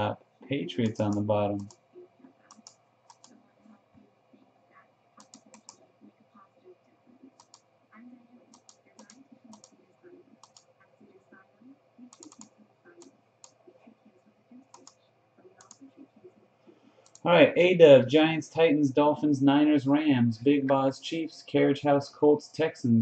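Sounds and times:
mouse and keyboard clicks: 0:02.5 - 0:03.4, 0:05.2 - 0:05.8, 0:07.4 - 0:07.6, 0:10.4 - 0:10.7, 0:12.1 - 0:13.6, 0:14.7 - 0:15.0.

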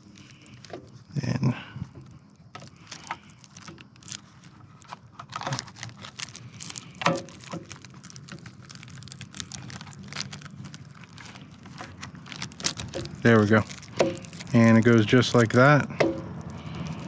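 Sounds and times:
plastic bag crinkling: 0:00.0 - 0:01.4, 0:02.1 - 0:17.0
plastic parts clicking: 0:04.8 - 0:10.3.

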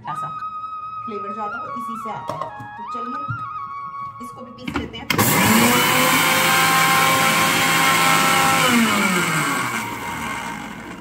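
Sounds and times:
mixer grinder motor whine: 0:05.1 - 0:11.0.

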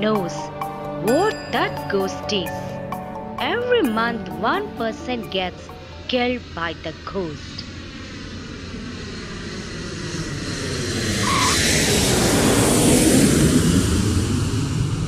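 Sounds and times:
vehicle passing by: 0:07.6 - 0:15.0.

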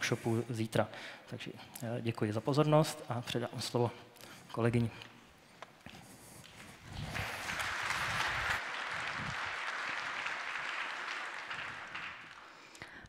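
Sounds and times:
audience applauding: 0:06.4 - 0:13.0.

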